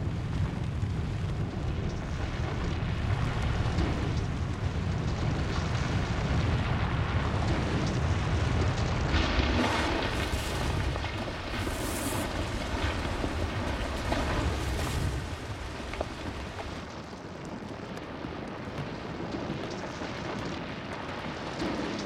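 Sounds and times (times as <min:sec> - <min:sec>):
volcano rumbling: 0:00.0 - 0:22.0
hissing rushes: 0:09.2 - 0:16.8.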